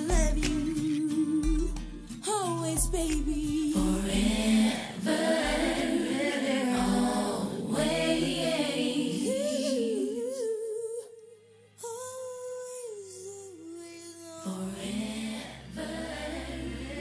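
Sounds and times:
woman singing: 0:00.0 - 0:17.0
bass beat: 0:00.1 - 0:00.8, 0:02.8 - 0:04.7.

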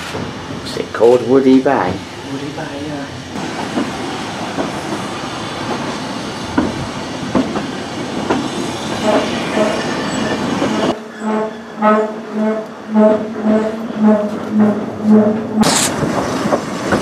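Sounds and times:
train rumbling: 0:00.0 - 0:17.0
wheels clicking on track: 0:13.4 - 0:17.0.

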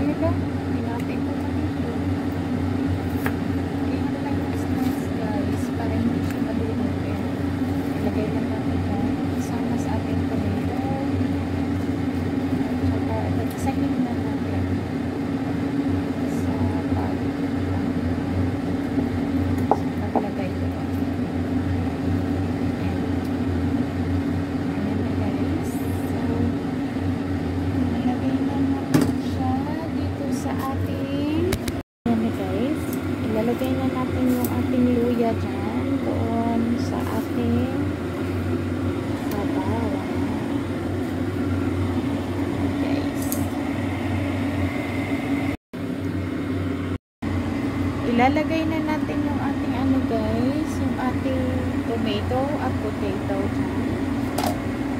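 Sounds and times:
low mechanical hum: 0:00.0 - 0:54.9
electric motor humming: 0:32.1 - 0:45.6.

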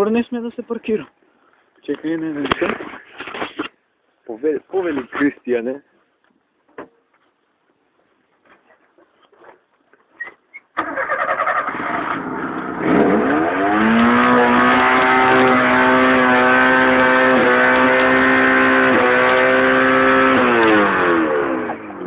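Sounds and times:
car engine starting and revving: 0:10.8 - 0:22.0.

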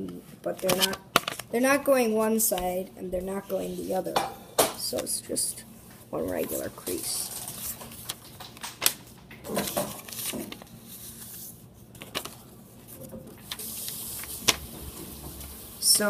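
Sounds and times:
paper rustling and crinkling: 0:00.5 - 0:01.5, 0:06.1 - 0:16.0
paper crackles: 0:00.5 - 0:01.6, 0:06.2 - 0:16.0.

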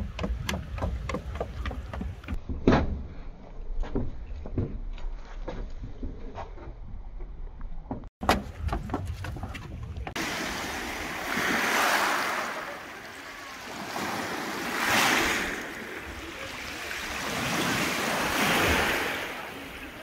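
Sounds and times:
small waves washing on shells: 0:10.2 - 0:20.0.

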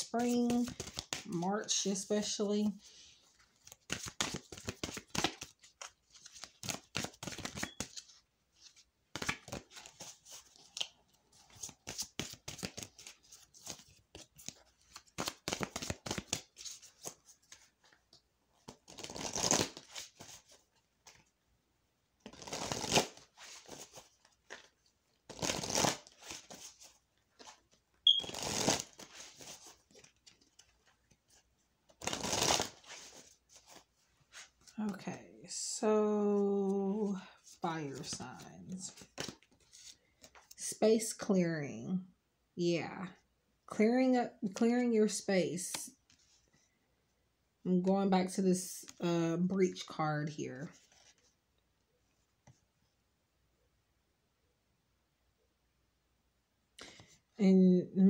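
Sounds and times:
cards being shuffled: 0:00.0 - 0:02.1, 0:02.7 - 0:21.3, 0:22.2 - 0:35.0, 0:37.5 - 0:40.6.

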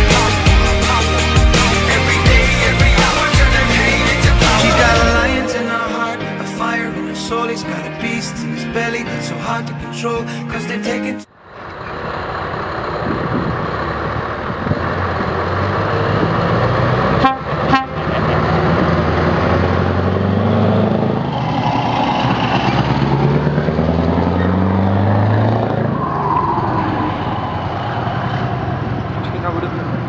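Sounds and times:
truck diesel engine accelerating: 0:00.0 - 0:30.0
truck horn toots: 0:17.1 - 0:18.6.

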